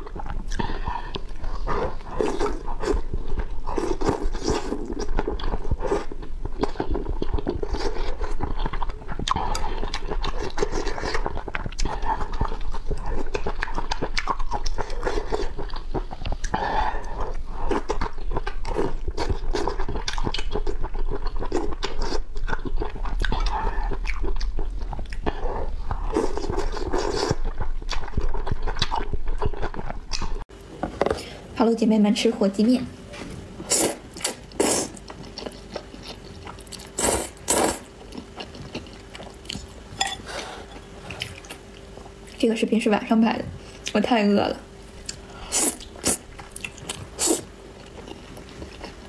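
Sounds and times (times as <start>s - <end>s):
wet chewing and mouth smacks: 0.0s - 16.6s, 17.2s - 30.4s.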